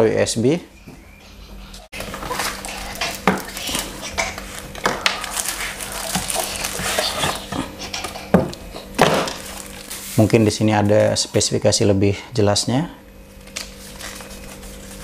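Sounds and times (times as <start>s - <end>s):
plastic bag crinkling: 2.0s - 7.5s, 8.8s - 11.2s, 13.3s - 15.0s.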